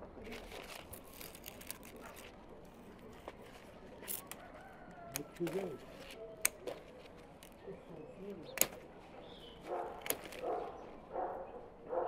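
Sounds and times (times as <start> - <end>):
leaves rustling and crackling: 0.0 - 6.2.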